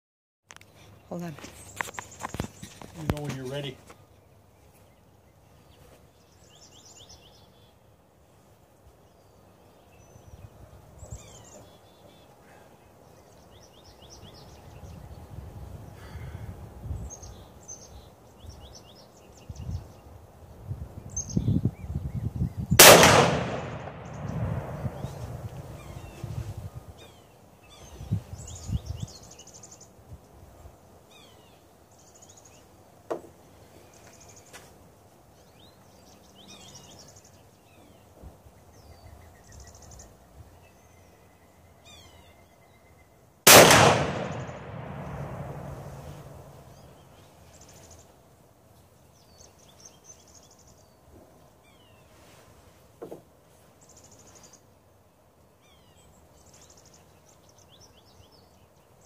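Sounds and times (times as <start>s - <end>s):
birds chirping: 0.5s - 7.8s, 21.1s - 30.0s, 35.3s - 48.1s
rifle shot boom: 22.8s - 26.0s, 43.5s - 46.8s.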